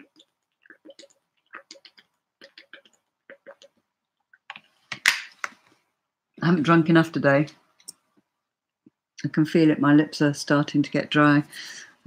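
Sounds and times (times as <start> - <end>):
person gulping from a bottle: 0.0 - 4.6.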